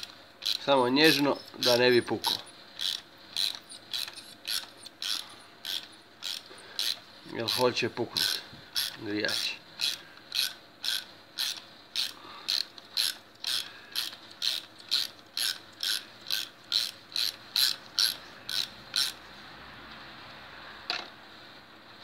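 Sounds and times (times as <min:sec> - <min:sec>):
ratchet wrench clicking: 0:00.0 - 0:07.6, 0:08.2 - 0:19.2.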